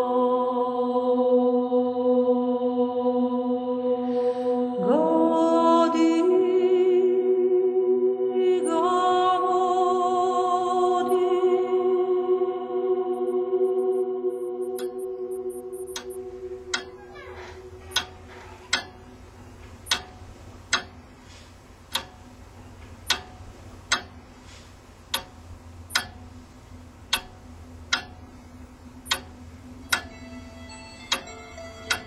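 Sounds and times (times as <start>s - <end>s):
held musical tones: 12.8s - 32.0s
clock ticking: 13.1s - 32.0s.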